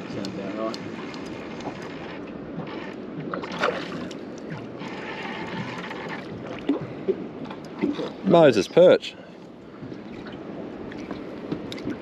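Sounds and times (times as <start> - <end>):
water lapping against boat hull: 0.0 - 12.0
water splash: 2.6 - 8.2.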